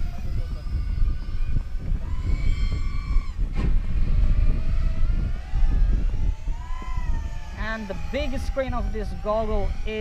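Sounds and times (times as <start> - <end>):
quadcopter motors whining: 0.0 - 10.0
wind rumble: 0.0 - 10.0.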